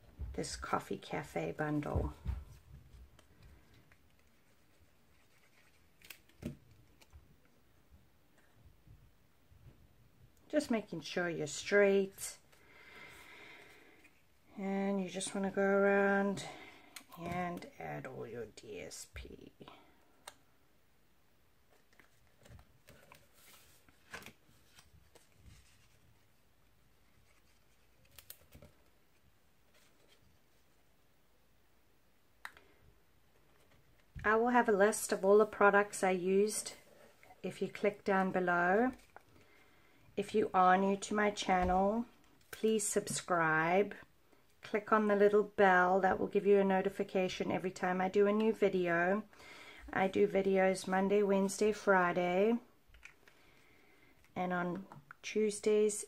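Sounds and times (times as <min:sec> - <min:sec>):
faint paper rustling: 0:01.6 - 0:07.6, 0:21.7 - 0:30.9.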